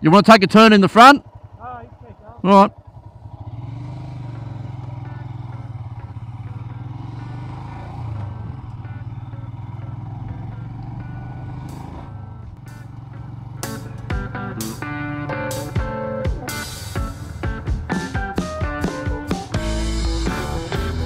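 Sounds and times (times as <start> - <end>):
motorcycle engine running: 0.0 - 21.0
faint guitar music: 4.2 - 21.0.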